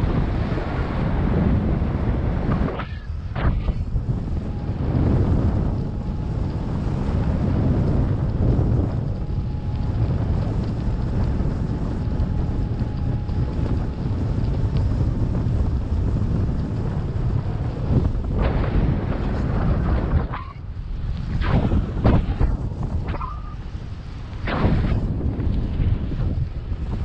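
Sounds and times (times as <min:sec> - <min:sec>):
crackling rustles: 0:00.0 - 0:27.0
wind buffeting microphone: 0:00.0 - 0:27.0.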